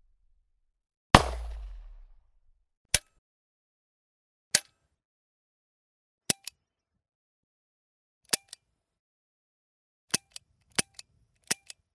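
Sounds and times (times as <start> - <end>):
pistol shot: 1.2 - 2.5.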